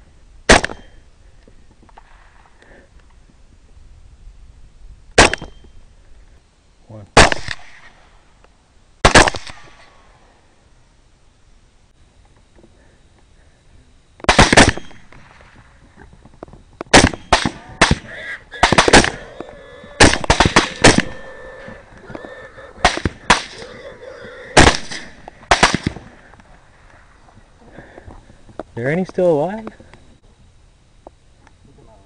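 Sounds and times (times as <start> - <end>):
rifle shots: 0.5 - 1.0, 5.2 - 5.7, 7.2 - 8.1, 9.0 - 10.0, 14.2 - 15.6, 16.9 - 19.3, 20.0 - 21.8, 22.8 - 23.6, 24.6 - 26.2.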